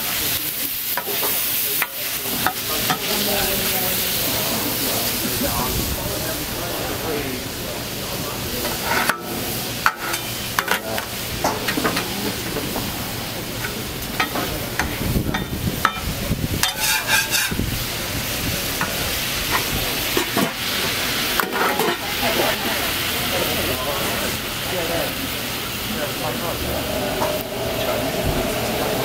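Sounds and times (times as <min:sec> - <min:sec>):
steak sizzling on a griddle: 0:00.0 - 0:28.6
metal spatula scraping a griddle: 0:08.7 - 0:10.8, 0:16.6 - 0:17.6, 0:21.4 - 0:22.1.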